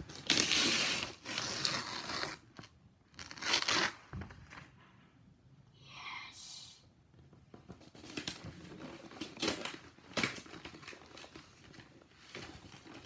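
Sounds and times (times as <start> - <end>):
wrapping paper tearing: 0.1 - 4.0.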